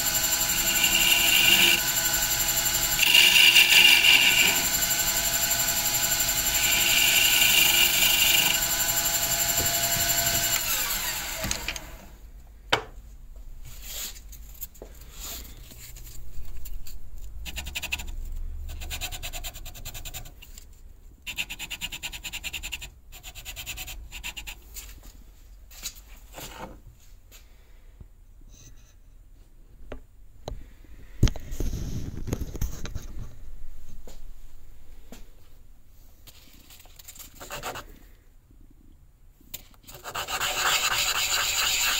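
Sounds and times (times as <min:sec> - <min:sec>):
lathe whining: 0:00.0 - 0:12.1
sandpaper rubbing: 0:39.9 - 0:41.9.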